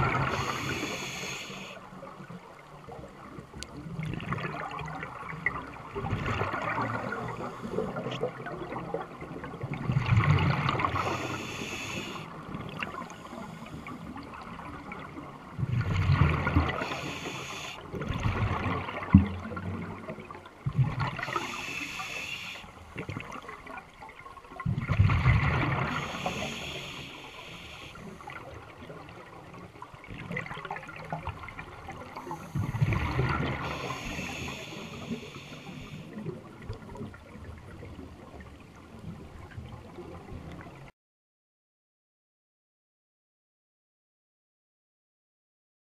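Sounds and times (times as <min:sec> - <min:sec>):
underwater breath bubbling: 0:00.0 - 0:02.0, 0:06.0 - 0:08.4, 0:09.9 - 0:14.5, 0:15.7 - 0:18.6, 0:20.9 - 0:23.2, 0:25.0 - 0:28.6, 0:31.9 - 0:36.4
underwater hiss: 0:00.0 - 0:02.1, 0:06.6 - 0:08.2, 0:10.7 - 0:14.2, 0:16.4 - 0:17.9, 0:21.2 - 0:22.9, 0:25.6 - 0:28.5, 0:32.1 - 0:36.2.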